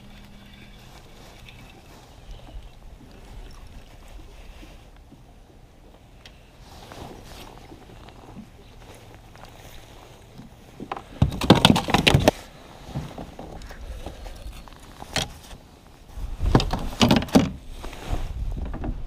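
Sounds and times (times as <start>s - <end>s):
rustling and knocking in kayak: 0.0s - 19.0s.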